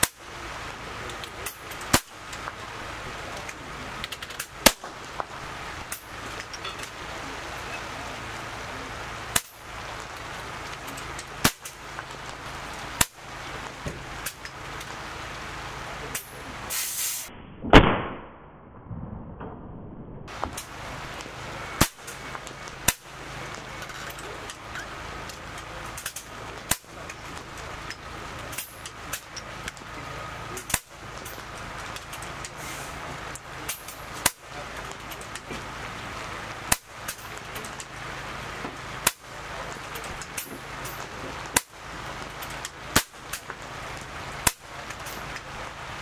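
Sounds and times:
steady background hiss: 0:00.0 - 0:17.3, 0:20.3 - 0:46.0
air rifle shots: 0:17.7 - 0:18.6.

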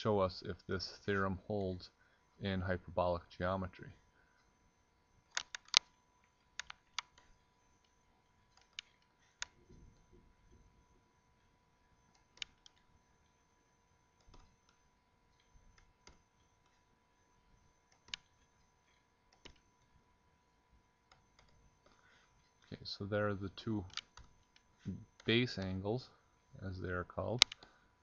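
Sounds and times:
faint steady hum: 0:00.0 - 0:28.0
computer mouse clicking: 0:05.3 - 0:10.1, 0:12.1 - 0:13.4, 0:14.2 - 0:16.8, 0:17.8 - 0:19.9, 0:21.1 - 0:22.7, 0:23.8 - 0:25.4, 0:27.4 - 0:27.7.

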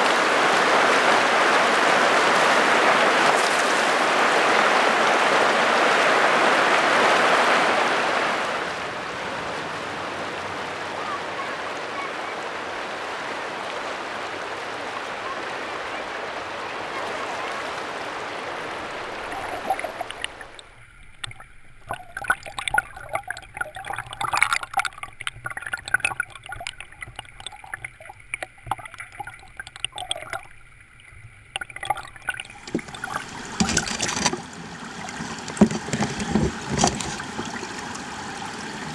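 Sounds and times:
water rushing over gravel: 0:00.0 - 0:08.6, 0:10.5 - 0:38.9
water gurgling and splashing: 0:17.8 - 0:38.9.

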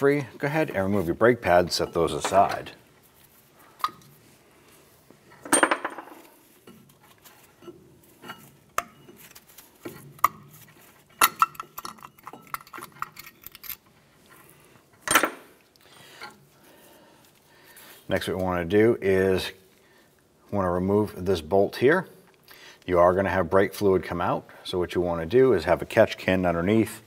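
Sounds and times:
metal clinks and clanks: 0:11.0 - 0:13.9.

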